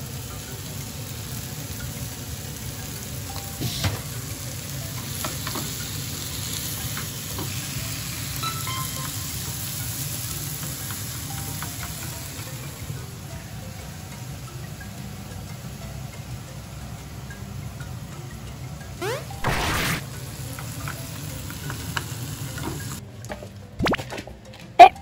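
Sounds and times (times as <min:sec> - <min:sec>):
vegetables sizzling in a frying pan: 0:00.0 - 0:18.1, 0:19.0 - 0:23.0
chopsticks clicking against a pan: 0:04.1 - 0:07.6, 0:08.4 - 0:12.8.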